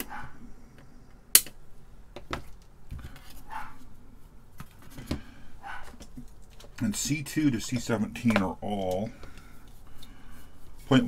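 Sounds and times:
circuit board handling rustles: 4.5 - 11.0.

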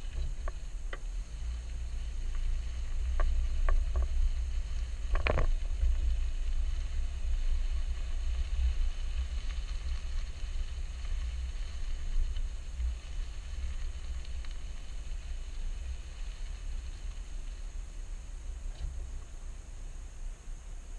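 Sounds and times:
tyres rolling over gravel: 0.0 - 20.9
wind and road rumble: 0.0 - 20.9.

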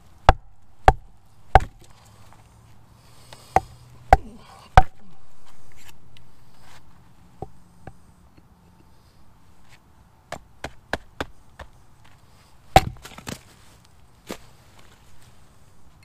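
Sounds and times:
hatchet striking wood: 0.2 - 1.9, 3.5 - 5.1, 12.7 - 13.4.

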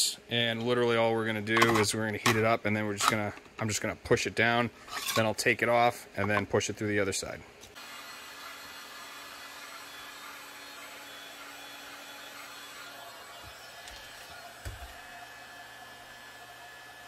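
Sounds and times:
heat gun blowing: 7.7 - 17.0.

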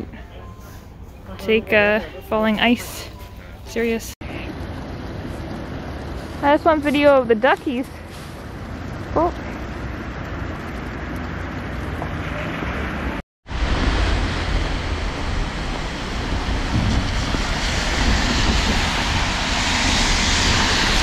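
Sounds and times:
wind noise on microphone: 10.4 - 21.0.

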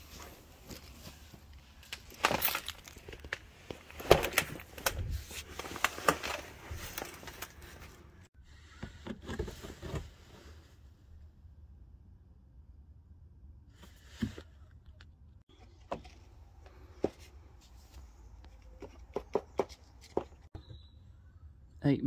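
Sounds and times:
cloth rustling: 0.0 - 8.3.

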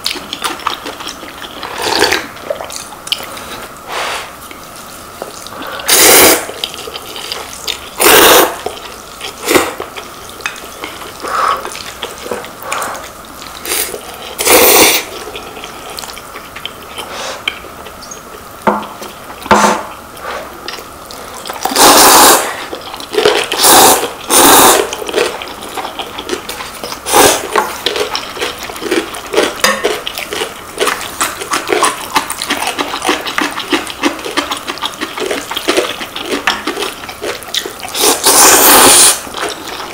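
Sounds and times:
chewing: 0.0 - 3.8, 4.4 - 19.4, 20.0 - 39.9
noodles being slurped: 5.2 - 16.2, 20.2 - 39.9.

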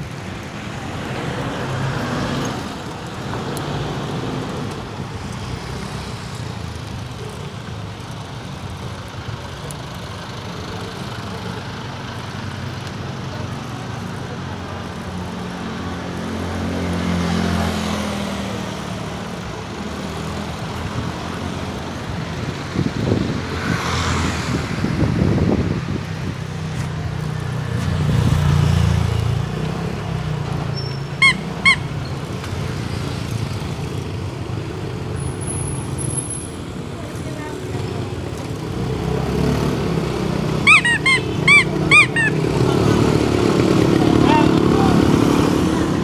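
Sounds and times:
vehicles passing with engine rumble: 0.0 - 46.0
short horn beeps: 40.7 - 42.4.

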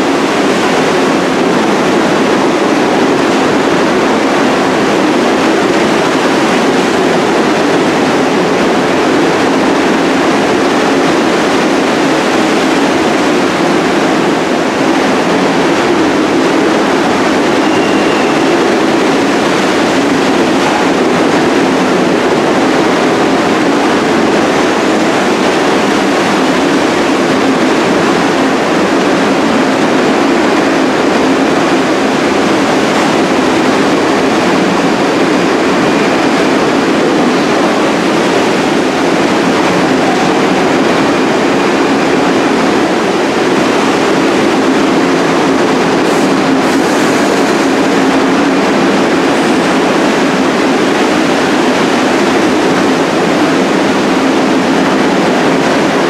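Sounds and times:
subway train wheels rumbling: 0.0 - 56.0.

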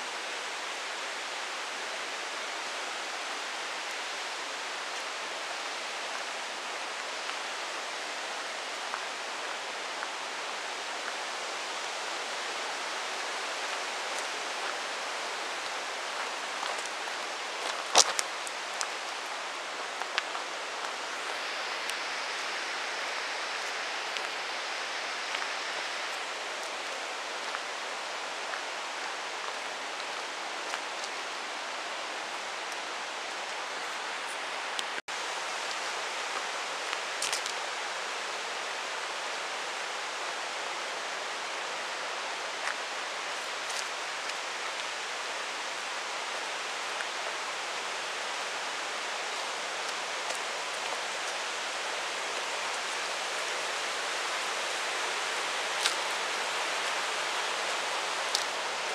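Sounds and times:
stream running over rocks: 0.0 - 58.9.

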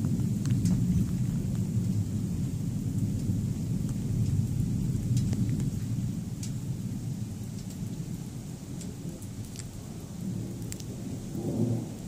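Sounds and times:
thunder rumbling: 0.0 - 12.0
light ticks: 0.2 - 1.7, 5.0 - 5.8, 6.4 - 6.6, 7.5 - 7.8.

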